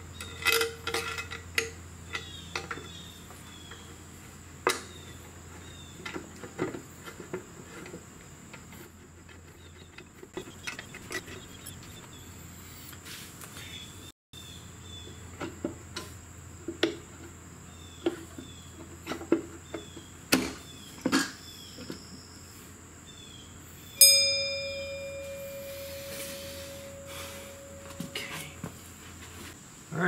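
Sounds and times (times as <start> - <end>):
metal tools clinking: 24.0 - 28.7
metal piece ringing: 24.0 - 28.8.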